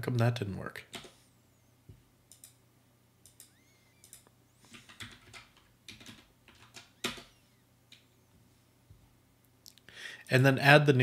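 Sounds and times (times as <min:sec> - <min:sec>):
keyboard keystrokes clicking: 0:03.3 - 0:07.3.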